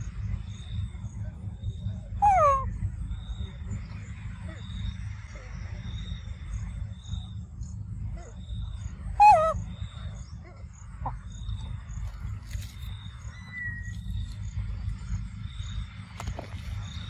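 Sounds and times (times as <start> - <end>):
low rumble: 0.0 - 17.0
monkey squealing: 2.2 - 2.7, 9.2 - 9.6.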